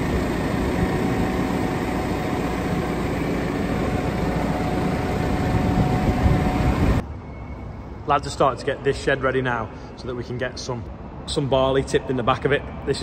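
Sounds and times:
tractor diesel engine idling: 0.0s - 7.0s
thin steady whine: 0.0s - 11.2s.

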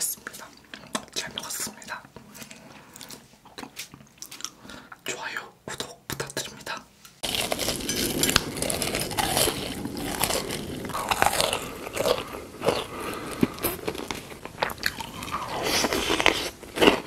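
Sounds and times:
chewing: 7.2s - 17.0s
crunchy food bites: 7.2s - 17.0s.

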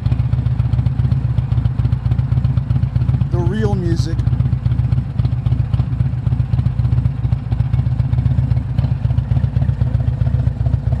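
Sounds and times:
motorcycle engine cruising: 0.0s - 11.0s
road and wind noise: 0.0s - 11.0s.

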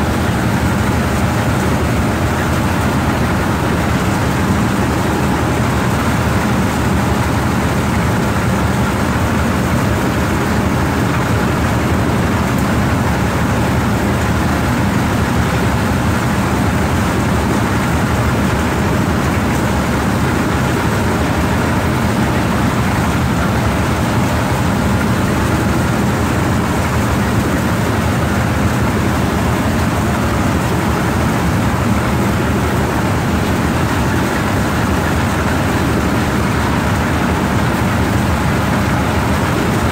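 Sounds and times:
threshing machine running: 0.0s - 39.9s.

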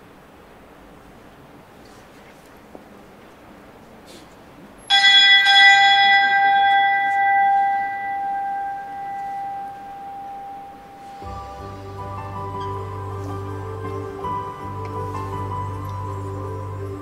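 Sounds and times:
bell ringing: 4.9s - 16.2s
music: 8.8s - 17.0s.

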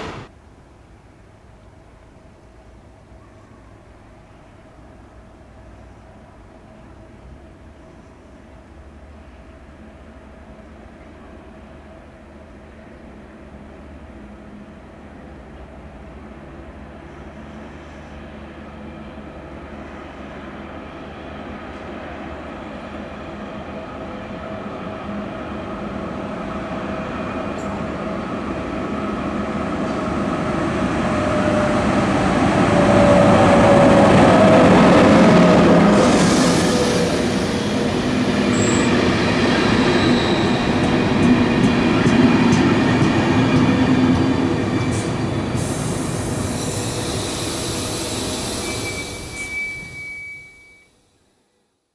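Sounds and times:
electric locomotive passing: 0.0s - 0.3s, 1.0s - 50.8s
train wheels rolling on rails: 0.0s - 0.3s, 13.5s - 50.5s.

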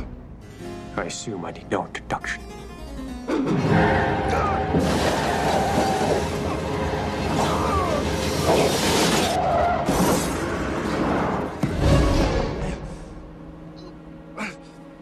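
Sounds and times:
car body scraping on road: 8.1s - 11.6s.

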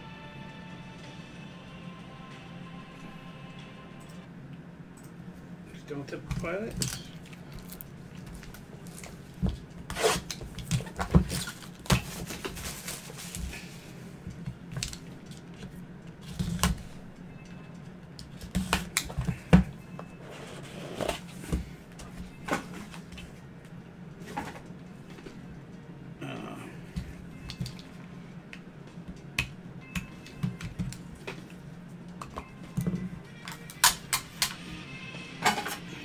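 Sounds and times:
steady low hum: 0.0s - 36.0s
cardboard and plastic rustling: 6.4s - 17.0s.

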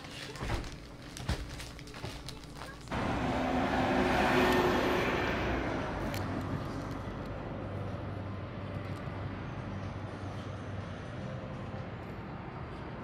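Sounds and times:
belongings clicking and rustling: 0.0s - 2.9s
moving vehicle noise: 1.4s - 13.0s.

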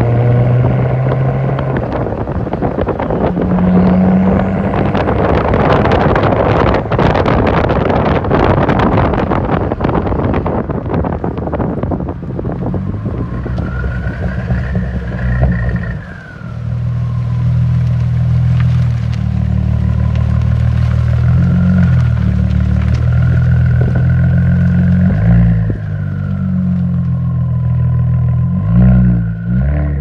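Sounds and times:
loud low exhaust drone: 0.0s - 9.5s
wind buffeting microphone: 0.0s - 30.0s.

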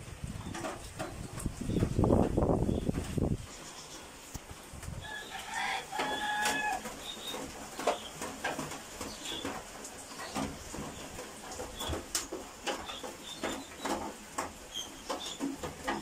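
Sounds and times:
rooster crowing: 5.0s - 6.9s.

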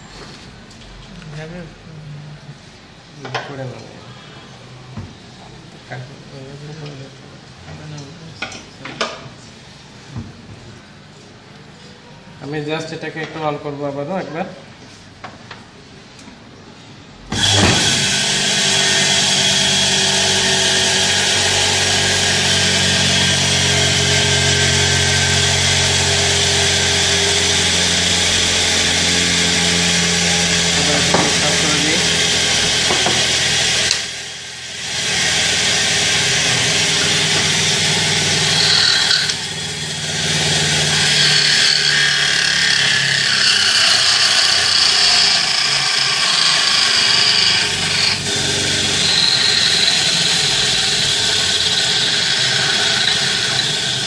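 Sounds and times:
electric motor humming: 17.3s - 54.0s.

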